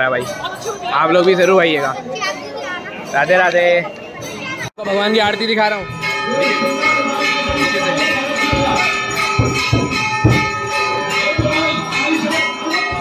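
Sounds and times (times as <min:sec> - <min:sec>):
temple bells ringing: 0:03.0 - 0:13.0
low thumps: 0:07.4 - 0:12.0.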